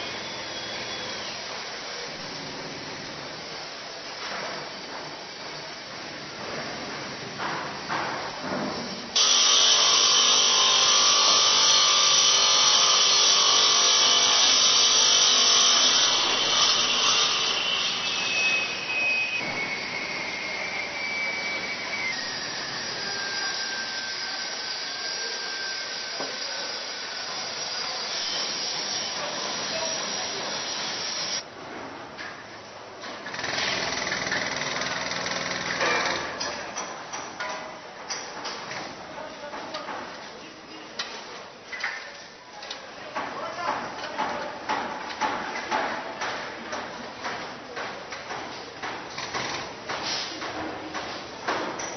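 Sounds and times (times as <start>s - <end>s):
construction site noise: 0.0s - 51.9s
power saw cutting stone: 9.2s - 31.4s.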